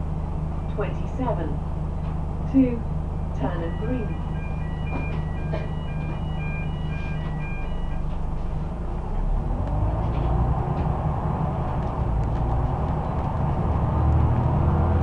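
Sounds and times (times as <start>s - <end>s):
bus diesel engine accelerating: 0.0s - 15.0s
repeating electronic beep: 3.6s - 8.0s.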